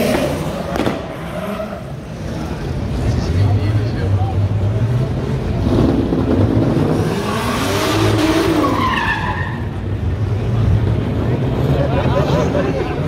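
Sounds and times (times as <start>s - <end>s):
tyres squealing and skidding: 0.0s - 3.4s, 6.5s - 10.0s
car engine revving: 0.0s - 13.0s.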